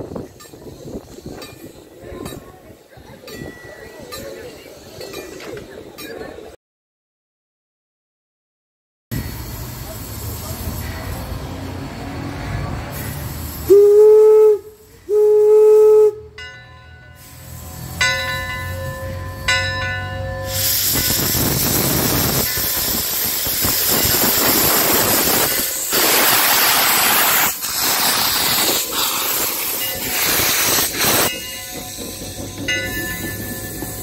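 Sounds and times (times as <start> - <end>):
loud hiss of steam: 9.2 - 16.1, 17.2 - 19.0, 20.4 - 34.0
steam locomotive whistle blasts: 13.6 - 16.4.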